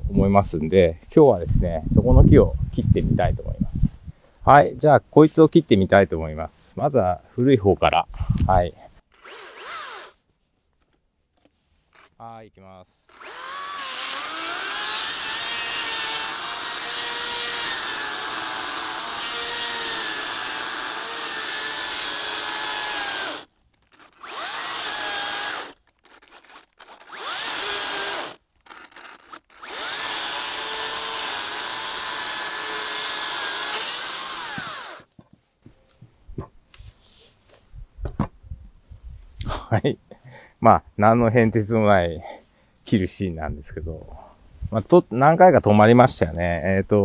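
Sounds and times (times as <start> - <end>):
cordless chainsaw cutting wood: 9.1 - 10.2, 11.9 - 12.2, 13.0 - 35.1.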